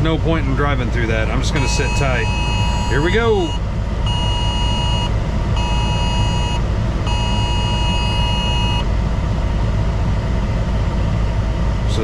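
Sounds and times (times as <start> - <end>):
low rumble in truck cab: 0.0 - 12.0
phone alert tone beeping: 1.6 - 8.8.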